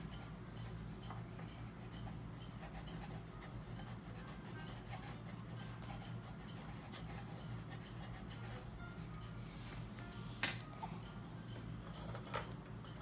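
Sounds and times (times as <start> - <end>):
pencil scratching on paper: 0.0 - 9.1
steady low hum: 0.0 - 13.0.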